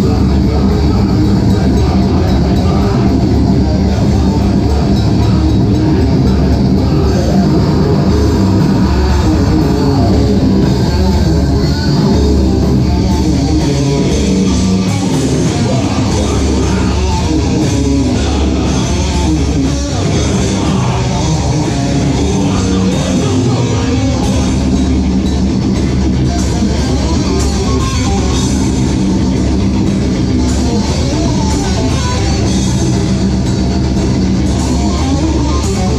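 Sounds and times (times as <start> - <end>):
person singing into a microphone: 0.0 - 12.6, 13.3 - 25.0
bass guitar: 0.0 - 35.9
drum kit: 0.0 - 35.9
electric guitar: 0.0 - 35.9.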